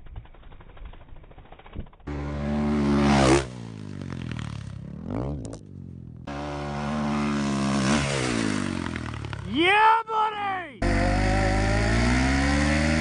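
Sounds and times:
dirt bike engine revving: 2.1 - 9.6, 10.8 - 13.0.

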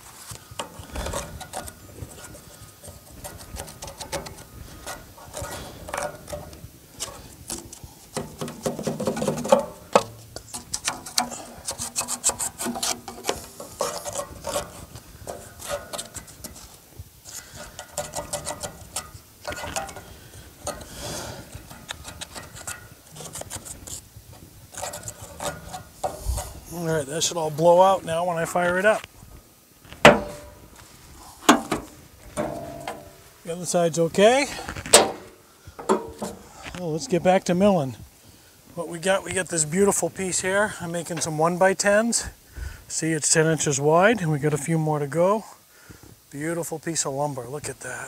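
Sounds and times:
sawdust scraped from metal housing: 0.6 - 24.1, 24.7 - 29.0, 29.9 - 36.7.

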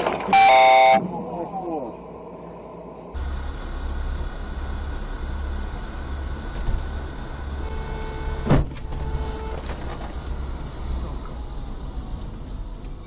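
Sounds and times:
steady tone: 0.4 - 1.1
car cabin rumble: 3.2 - 13.0
loud sharp thump: 8.4 - 8.9.

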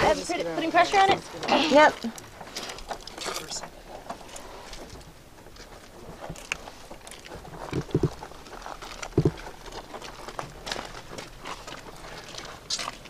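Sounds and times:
handling noise: 3.6 - 13.0.

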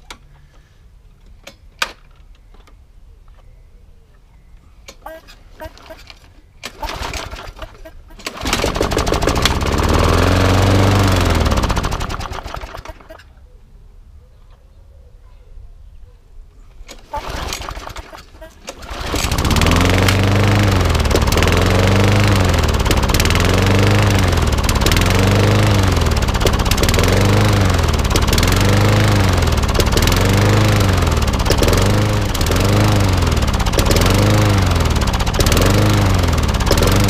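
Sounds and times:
lawnmower engine pull-starting: 4.9 - 13.3, 16.8 - 37.0
lawnmower engine running rough: 6.6 - 13.3, 16.9 - 37.0.

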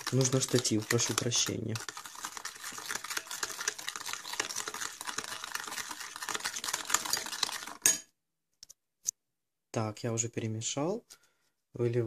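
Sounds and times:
whisk clicking in glass bowl: 0.0 - 8.0.

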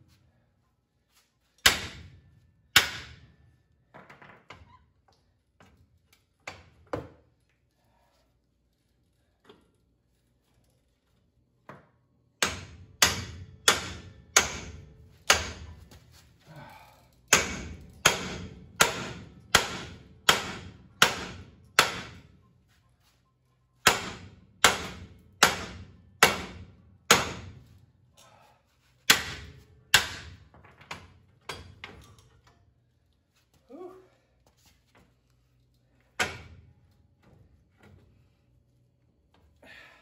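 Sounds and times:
sledgehammer hitting steel: 1.6 - 3.3, 12.4 - 15.8, 17.3 - 22.3, 23.8 - 27.6, 29.1 - 30.4.

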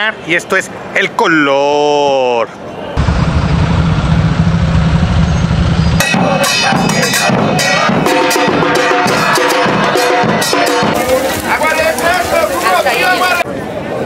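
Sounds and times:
bus and motorcycle engines rumbling: 2.6 - 7.7
street drum band: 4.4 - 13.5.

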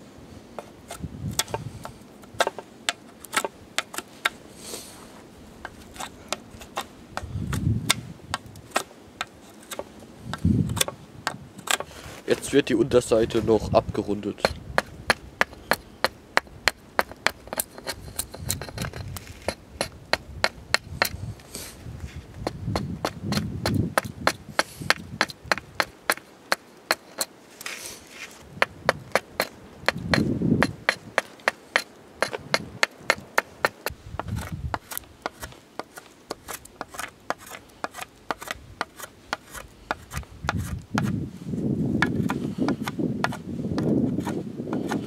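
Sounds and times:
axe chopping wood: 2.3 - 4.4, 22.4 - 27.3, 28.6 - 41.2, 42.0 - 45.0.

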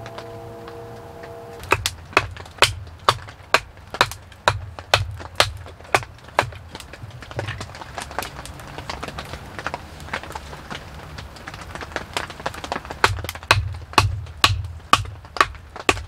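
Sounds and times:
low steady tones: 0.0 - 2.5
sharp knocks: 0.0 - 6.6.

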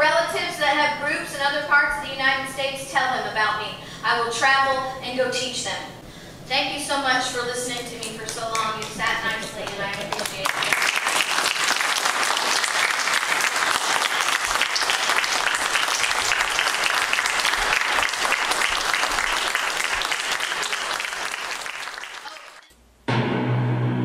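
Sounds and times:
audience applauding: 8.3 - 22.7
music: 23.1 - 24.0.

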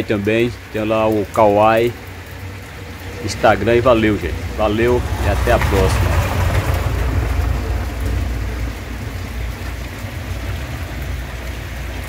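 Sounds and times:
heavy rain falling: 0.0 - 12.0.

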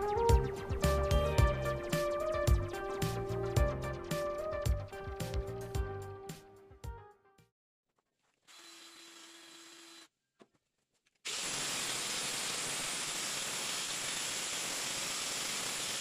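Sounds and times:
angle grinder grinding on steel: 8.5 - 10.1.

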